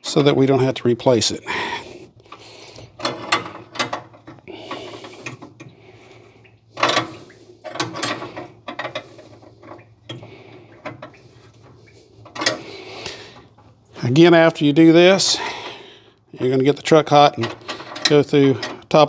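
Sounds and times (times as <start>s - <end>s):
wrench clicking and scraping on metal: 12.2s - 12.7s.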